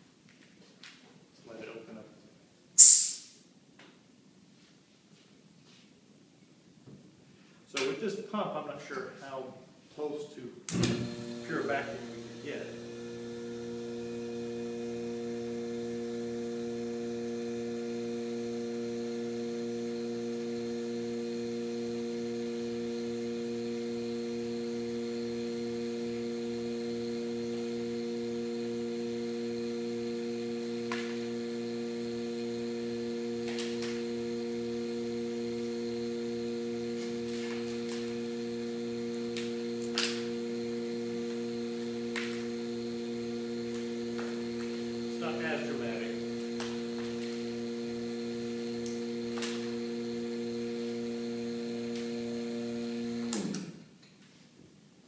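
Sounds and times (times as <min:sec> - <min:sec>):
vacuum pump humming drone: 0:10.7 - 0:53.8.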